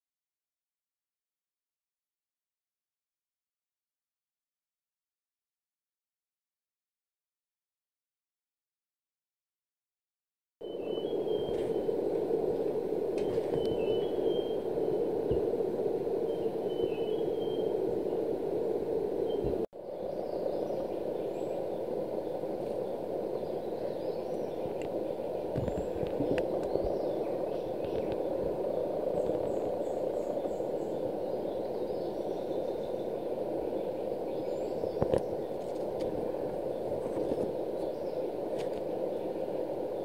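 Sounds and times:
distant birds chirping: 10.6 - 40.0
low rushing noise: 10.7 - 40.0.

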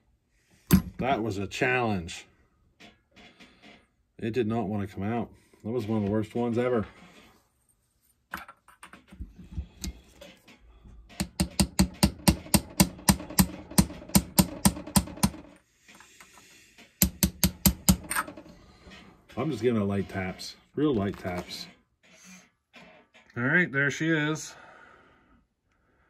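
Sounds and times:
small hammer tapping: 11.1 - 15.4, 17.0 - 18.1.

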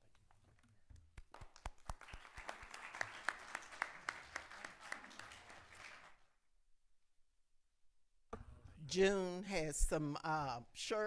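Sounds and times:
audience applauding: 1.2 - 6.2.

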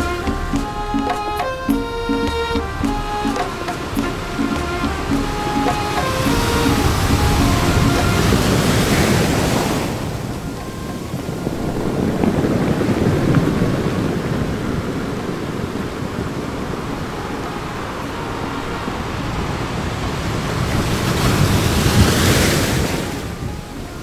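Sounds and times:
waves washing onto beach: 2.8 - 24.0
wind rumbling on microphone: 5.0 - 24.0.

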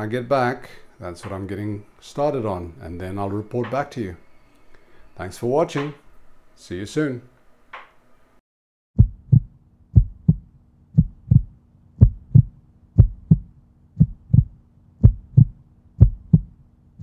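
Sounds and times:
heartbeat thumps: 9.0 - 16.6
low steady hum: 9.0 - 17.0.

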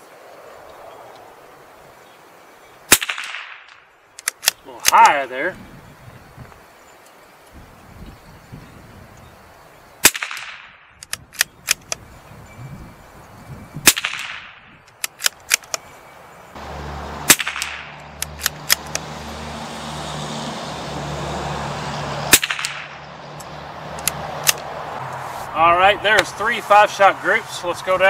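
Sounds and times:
rifle shots with echo: 2.9 - 3.8, 10.0 - 10.9, 13.8 - 14.6, 17.3 - 18.0, 22.3 - 23.0
rifle bolt clicks: 4.2 - 5.1, 10.2 - 12.0, 14.1 - 15.8, 17.5 - 19.0, 23.4 - 24.7
low engine hum: 16.2 - 26.4.

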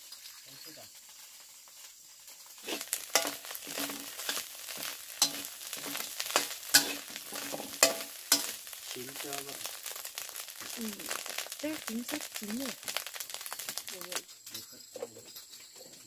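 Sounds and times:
food sizzling in a pan: 0.0 - 16.0
utensil clacking against pan: 2.6 - 9.3.

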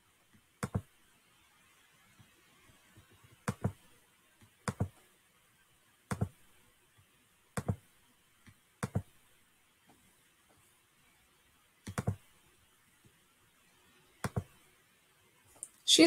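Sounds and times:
computer mouse clicks: 4.7 - 4.9, 11.8 - 12.2.

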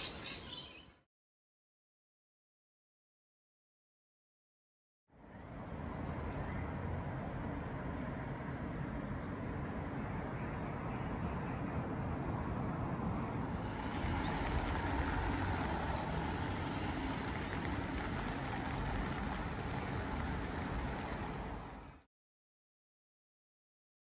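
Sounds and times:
road traffic noise: 5.2 - 22.1
low rumble: 13.4 - 22.0.

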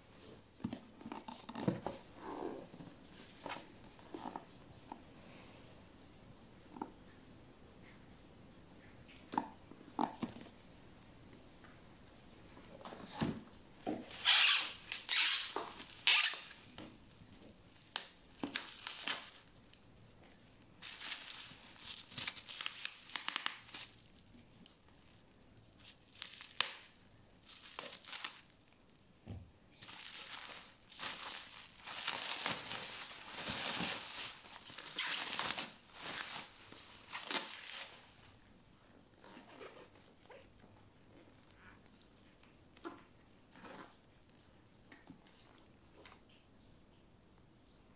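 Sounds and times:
bubble wrap crinkling and tearing: 14.0 - 16.8, 17.7 - 29.0, 29.7 - 38.5.

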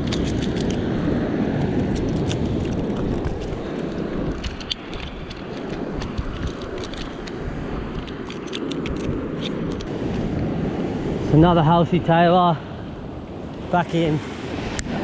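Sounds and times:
wind rumbling on microphone: 0.0 - 15.0
surf washing against rocks: 13.4 - 15.0.

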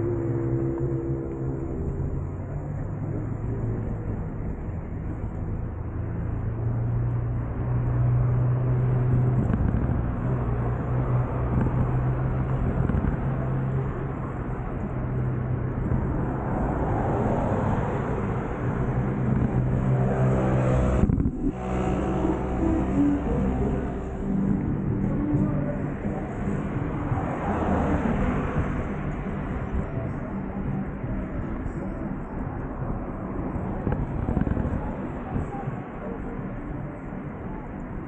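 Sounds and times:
rushing wind: 9.0 - 36.9.

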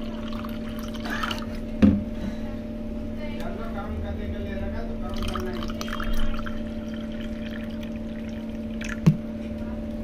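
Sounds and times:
steady low hum: 0.0 - 10.0
juice pouring into steel tumbler: 5.1 - 9.0.

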